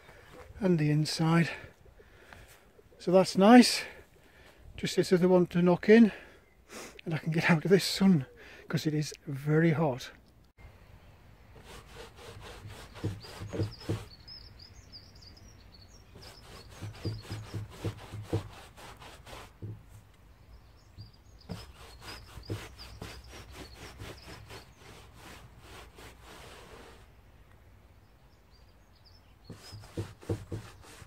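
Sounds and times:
paintbrush scrubbing on wood: 0:11.6 - 0:14.2, 0:16.2 - 0:19.8, 0:21.4 - 0:27.1, 0:29.5 - 0:31.0.

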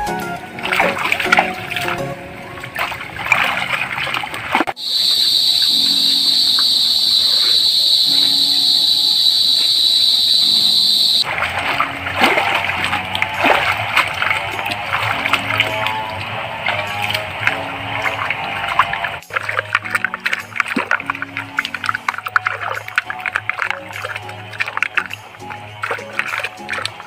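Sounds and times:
water splashing and sloshing: 0:00.0 - 0:27.0
steady high-pitched buzz: 0:04.8 - 0:11.2.

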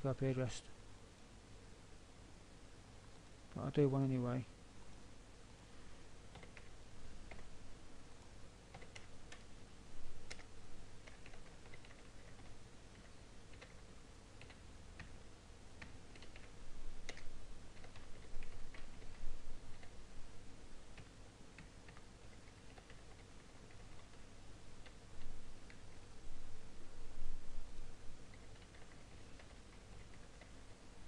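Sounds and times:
faint low hum: 0:00.0 - 0:31.0
keyboard typing: 0:06.3 - 0:07.5, 0:08.7 - 0:09.5, 0:10.2 - 0:15.2, 0:15.8 - 0:20.0, 0:20.9 - 0:25.0, 0:28.3 - 0:30.8.

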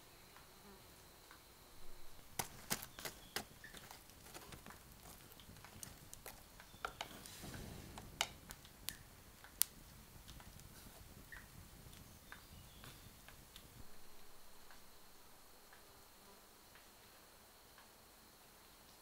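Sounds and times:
campfire crackling and popping: 0:01.8 - 0:16.1.

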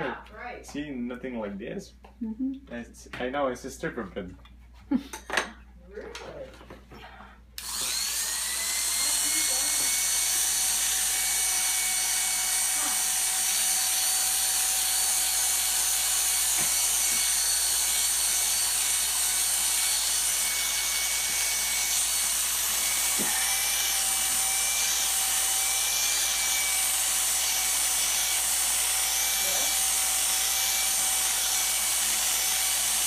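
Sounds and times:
electric clippers humming: 0:07.6 - 0:33.0.

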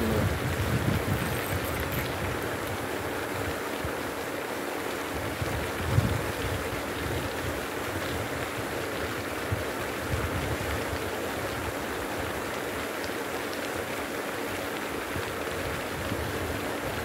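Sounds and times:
wind buffeting microphone: 0:00.0 - 0:02.8, 0:05.2 - 0:08.4.

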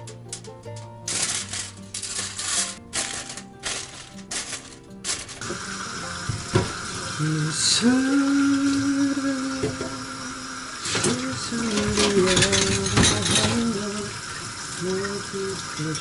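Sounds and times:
pots and dishes clattering: 0:00.3 - 0:07.2, 0:09.6 - 0:10.1, 0:10.8 - 0:15.2
running kitchen tap: 0:05.3 - 0:16.0
man singing long notes: 0:07.1 - 0:14.2.

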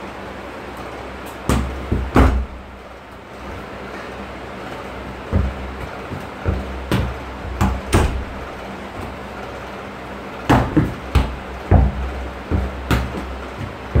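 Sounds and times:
bare feet landing: 0:01.2 - 0:09.6, 0:10.4 - 0:14.0
football thudding on wall: 0:01.5 - 0:02.6, 0:05.2 - 0:09.2, 0:10.5 - 0:14.0.

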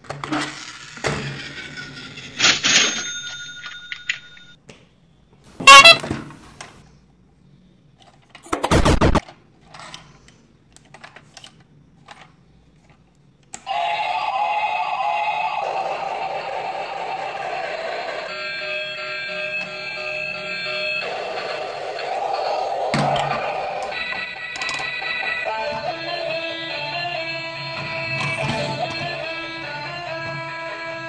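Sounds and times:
electronic toy sound effects: 0:05.6 - 0:06.0, 0:13.7 - 0:18.4
toy gear train electronic tune: 0:05.6 - 0:06.0, 0:13.7 - 0:22.7, 0:23.4 - 0:30.8
plastic toys being handled: 0:05.6 - 0:06.8, 0:08.0 - 0:13.2.

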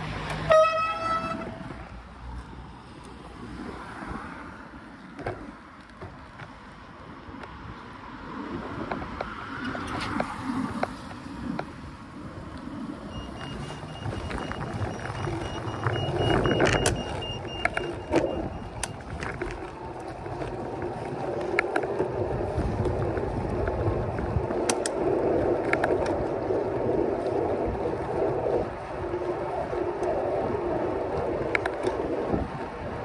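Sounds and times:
steady rolling rumble: 0:00.0 - 0:33.0
wind buffeting microphone: 0:00.0 - 0:33.0
small clicks: 0:24.6 - 0:25.0.

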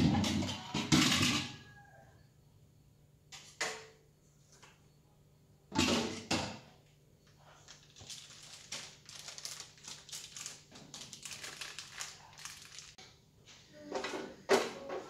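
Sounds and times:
plastic packet crinkling: 0:07.6 - 0:13.0.

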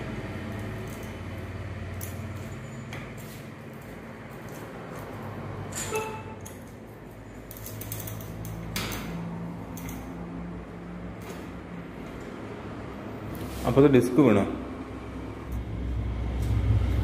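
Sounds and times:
bicycle chain and wheel rattling: 0:00.4 - 0:10.2.

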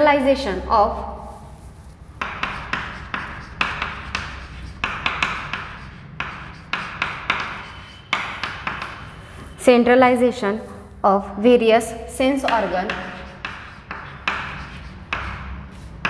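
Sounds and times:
chalk scratching on chalkboard: 0:01.3 - 0:09.6, 0:12.2 - 0:16.0.

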